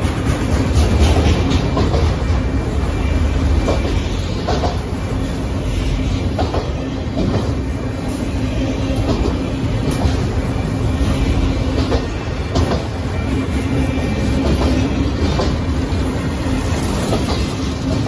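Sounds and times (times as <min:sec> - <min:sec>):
wheels clunking over rail joints: 0:00.0 - 0:02.6
train wheels rumbling on rail: 0:00.0 - 0:18.0.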